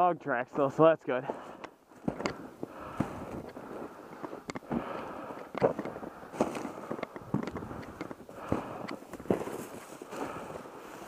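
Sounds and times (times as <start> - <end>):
brush stems rustling: 1.9 - 11.0
boots crunching through snow: 8.5 - 11.0.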